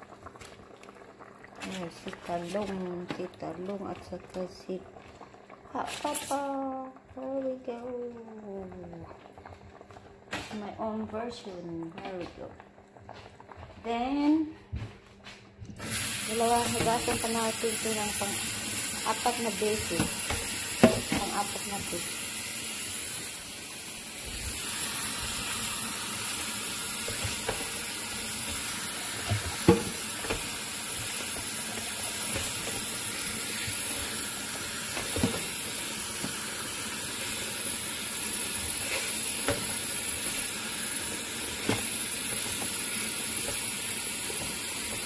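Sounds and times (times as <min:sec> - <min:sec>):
tap water running into sink: 0:15.8 - 0:45.0.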